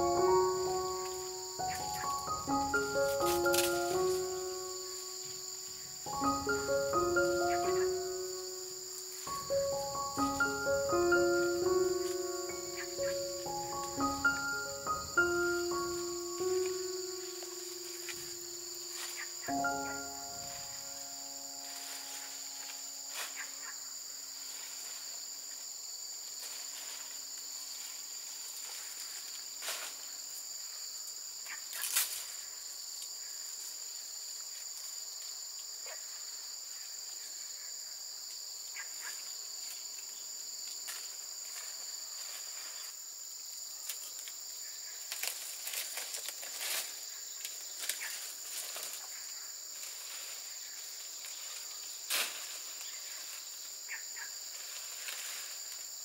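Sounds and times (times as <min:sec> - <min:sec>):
insects chirring: 0:00.0 - 0:56.0
palm leaves rustling and knocking: 0:03.2 - 0:04.2, 0:45.1 - 0:49.2, 0:49.8 - 0:53.5, 0:54.5 - 0:55.9.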